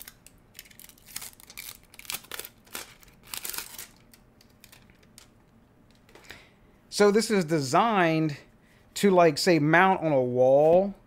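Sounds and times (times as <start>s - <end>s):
plastic film crinkling: 0.0s - 5.3s.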